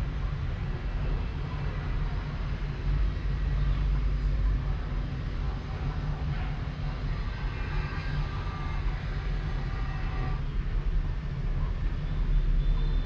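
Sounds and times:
distant city traffic rumble: 0:00.0 - 0:13.0.

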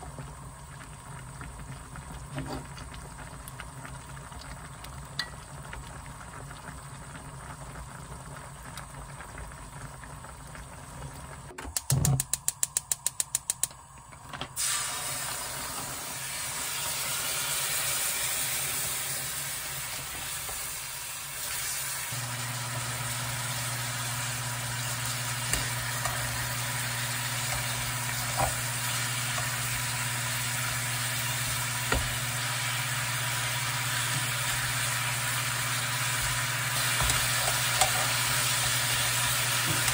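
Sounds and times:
soup bubbling in a pot: 0:00.0 - 0:12.2, 0:13.8 - 0:39.9
meat sizzling in a frying pan: 0:14.6 - 0:39.9.

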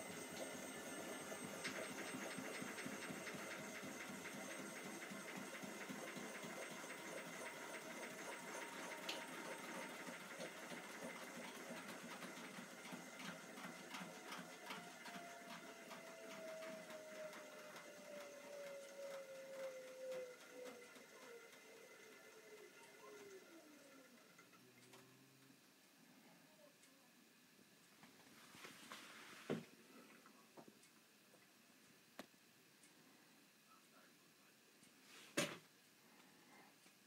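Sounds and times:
washing machine drum churning: 0:00.0 - 0:22.5
faint whine: 0:22.0 - 0:37.0.

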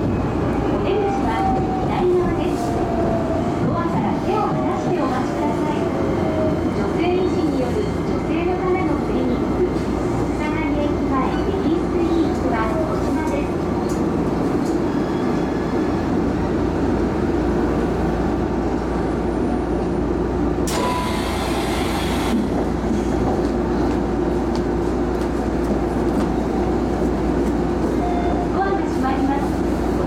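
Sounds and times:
electric train humming: 0:20.4 - 0:25.0.

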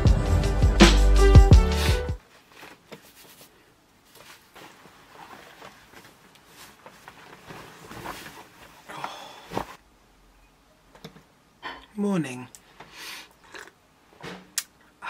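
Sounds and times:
faint rustles: 0:02.2 - 0:09.8.

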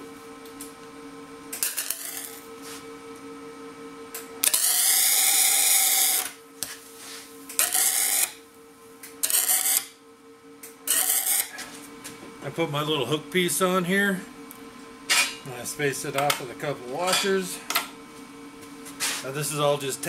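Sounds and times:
welder arc sizzling and crackling: 0:01.5 - 0:02.8, 0:04.1 - 0:10.0, 0:10.6 - 0:11.6.

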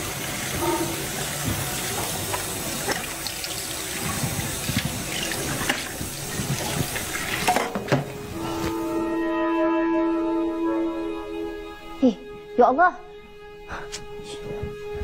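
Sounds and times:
tap water running into sink: 0:00.0 - 0:08.2
music: 0:02.4 - 0:15.0.

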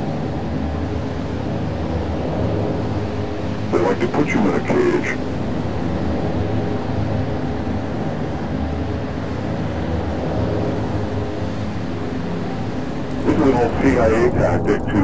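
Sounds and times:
faint hum: 0:00.0 - 0:15.0
low mechanical rumble: 0:13.0 - 0:15.0.

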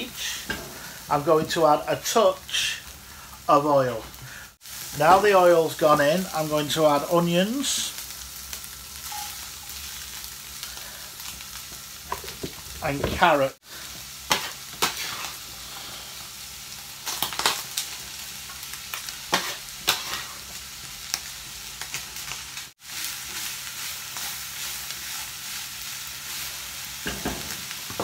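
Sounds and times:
vegetables sizzling in oil: 0:00.0 - 0:28.0.

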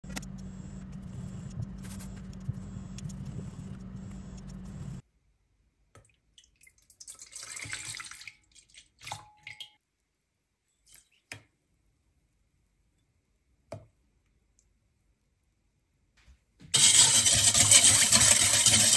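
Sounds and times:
milk pouring into metal bowl: 0:06.4 - 0:09.2, 0:16.8 - 0:18.9.

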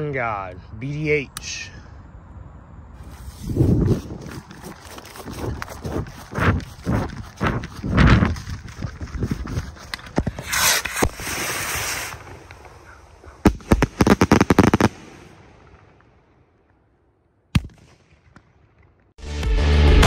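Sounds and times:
firework cracks: 0:09.8 - 0:16.8
rockets launching hiss: 0:10.1 - 0:15.6.

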